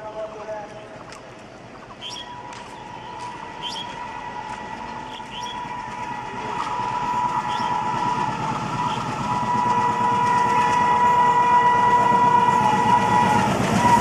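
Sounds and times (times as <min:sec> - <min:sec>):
diesel locomotive approaching: 0:00.0 - 0:14.0
birds chirping: 0:00.3 - 0:06.2, 0:07.4 - 0:07.9.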